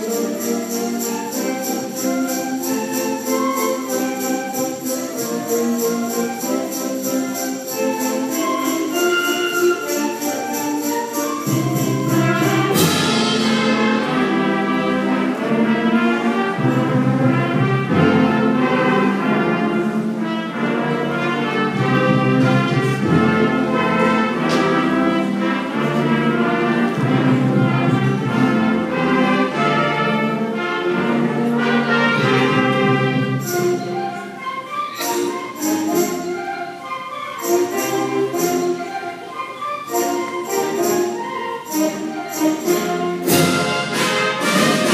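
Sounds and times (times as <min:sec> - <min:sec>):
concert band playing: 0:00.0 - 0:44.9
cymbal crash: 0:12.7 - 0:14.6.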